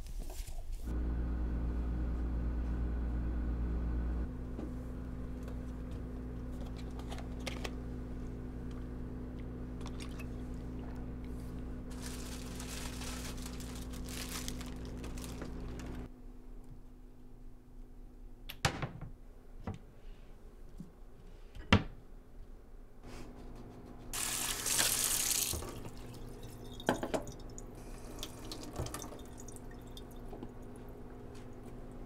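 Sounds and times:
refrigerator humming: 0:00.9 - 0:16.4, 0:23.2 - 0:32.0
packages rustling and crinkling: 0:11.9 - 0:16.1.

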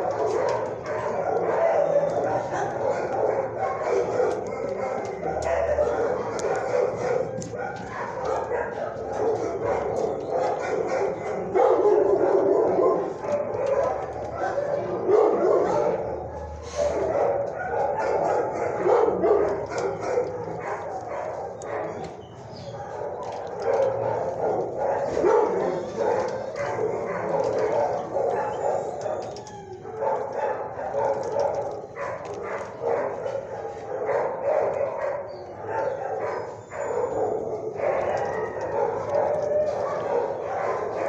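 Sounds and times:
dogs barking and yipping: 0:00.0 - 0:41.0.

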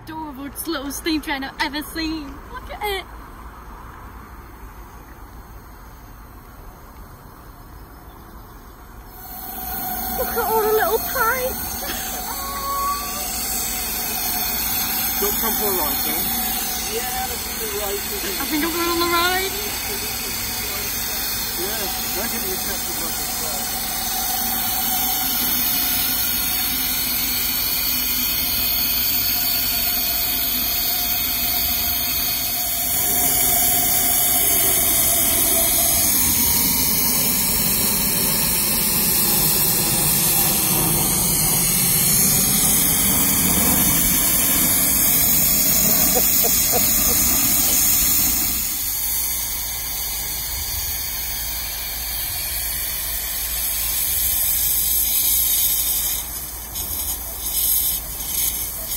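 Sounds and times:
jet airliner passing overhead: 0:09.1 - 0:51.3
steam blowing from drain cocks: 0:09.1 - 0:58.9
steam locomotive hissing: 0:09.1 - 0:58.9.

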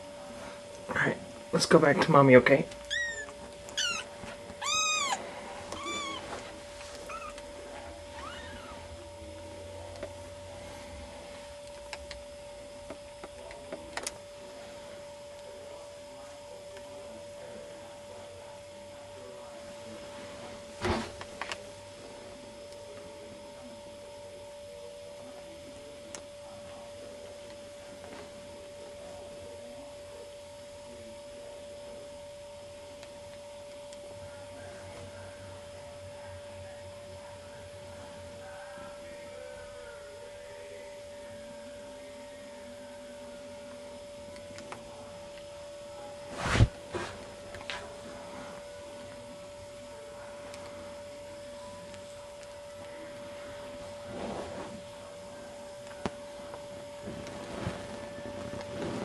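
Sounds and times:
steady hum: 0:00.0 - 0:59.0
kitten mewing: 0:02.8 - 0:06.4, 0:07.0 - 0:07.4, 0:08.1 - 0:08.8
thump: 0:20.8 - 0:21.1.

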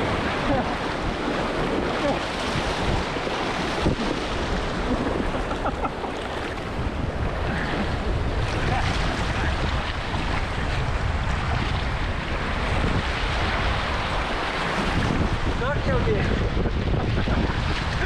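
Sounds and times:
river rushing over rapids: 0:00.0 - 0:11.2
wind buffeting microphone: 0:00.0 - 0:18.0.

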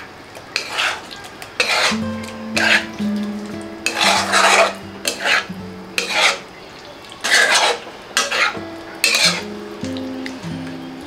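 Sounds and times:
metal spatula scraping pan: 0:00.6 - 0:03.0, 0:03.8 - 0:06.5, 0:07.2 - 0:09.6.

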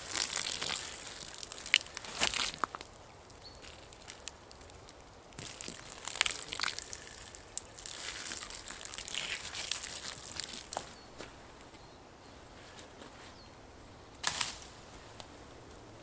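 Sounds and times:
water splashing on campfire logs: 0:00.0 - 0:10.9
sharp crackles: 0:00.0 - 0:11.0.

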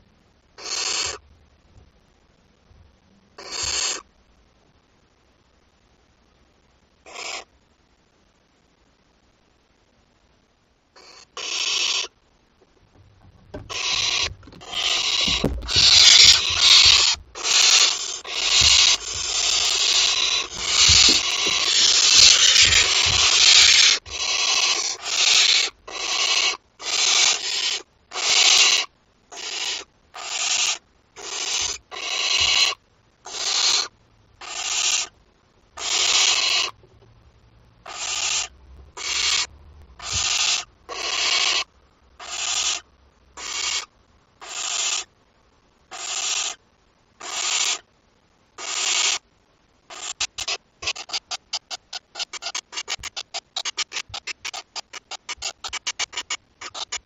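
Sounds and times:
owl chicks hissing: 0:00.6 - 0:01.2, 0:03.4 - 0:04.0, 0:07.1 - 0:07.5, 0:11.0 - 0:12.1, 0:13.5 - 0:35.1, 0:35.8 - 0:36.8, 0:37.8 - 0:45.1, 0:45.9 - 0:46.6, 0:47.2 - 0:47.8, 0:48.6 - 0:49.2, 0:49.9 - 0:57.0.

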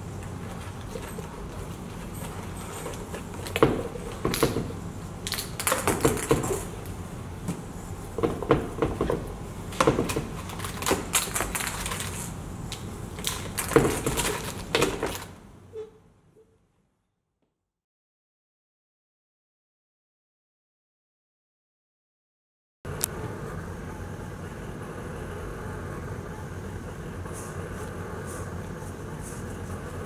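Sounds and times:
foil sheet rustling: 0:10.4 - 0:12.4.

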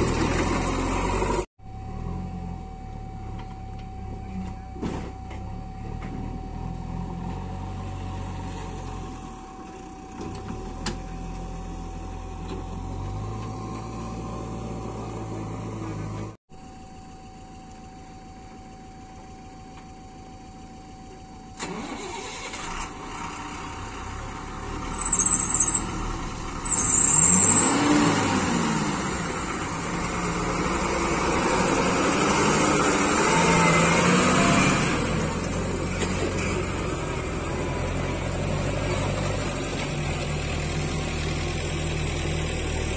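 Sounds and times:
diesel truck engine revving: 0:00.0 - 0:02.6, 0:10.2 - 0:16.4, 0:21.6 - 0:42.9.

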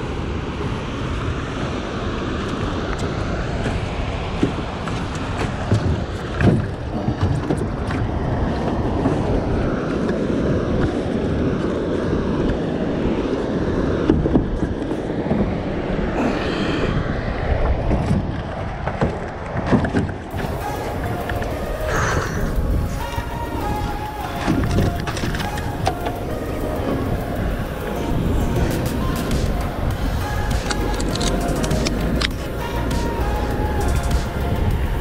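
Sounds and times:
water rushing around boat: 0:00.0 - 0:35.0
wind rushing: 0:00.0 - 0:35.0.

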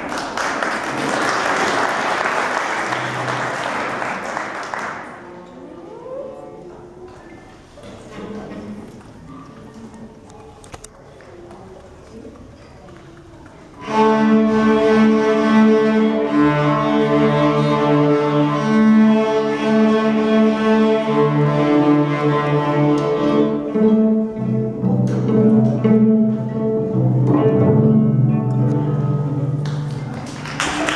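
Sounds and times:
cellos playing long notes: 0:13.7 - 0:30.1.

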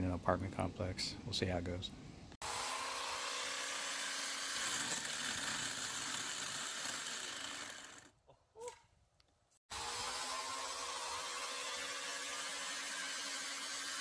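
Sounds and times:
electric chainsaw cutting wood: 0:02.4 - 0:08.1, 0:09.7 - 0:14.0.

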